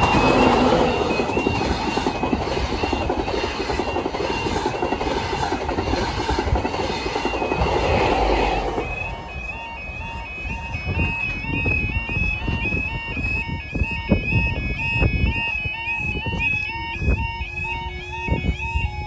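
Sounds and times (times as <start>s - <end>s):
train wheels clattering on rail: 0.0s - 10.1s
diesel train passing: 0.0s - 12.5s
two-tone crossing alarm: 0.0s - 19.0s.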